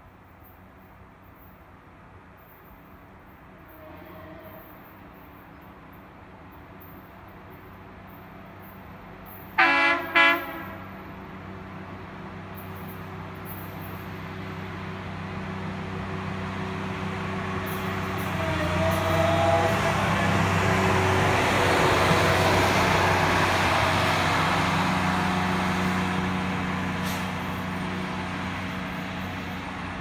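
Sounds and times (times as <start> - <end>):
rail maintenance machine engine: 0.0 - 30.0.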